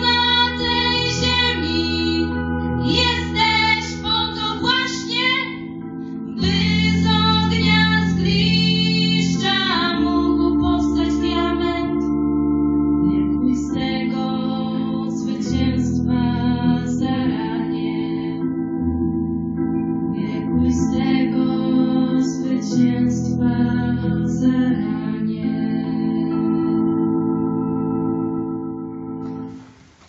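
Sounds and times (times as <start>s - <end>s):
women singing through a pa: 0.0s - 5.6s, 6.4s - 12.0s, 20.2s - 26.6s
held accompaniment chords: 0.0s - 30.0s.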